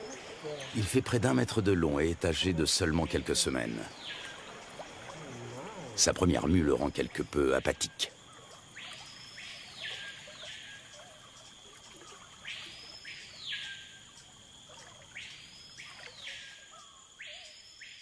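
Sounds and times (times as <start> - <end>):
bird calling: 0.0 - 2.0, 2.6 - 14.2.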